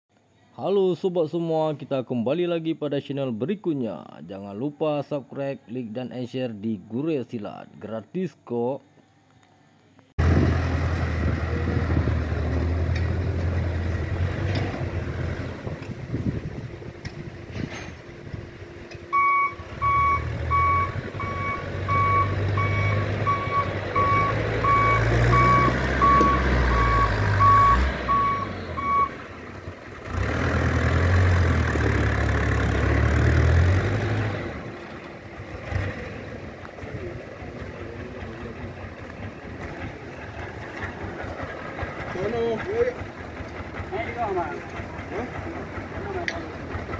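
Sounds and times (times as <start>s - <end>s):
diesel engine pulling under load: 10.2s - 46.9s
truck back-up alarm beeping: 19.0s - 29.3s.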